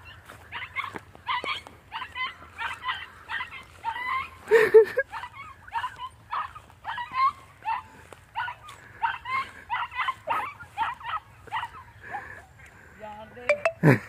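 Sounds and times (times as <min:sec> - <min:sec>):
puppy yipping: 0:00.0 - 0:04.4, 0:05.1 - 0:11.8.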